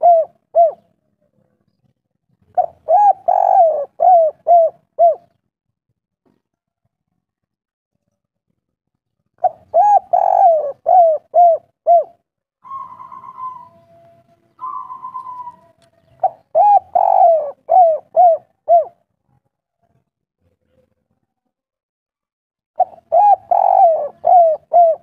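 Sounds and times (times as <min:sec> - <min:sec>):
dove cooing: 0:00.0 - 0:01.0, 0:02.5 - 0:05.4, 0:09.4 - 0:19.0, 0:22.8 - 0:25.0.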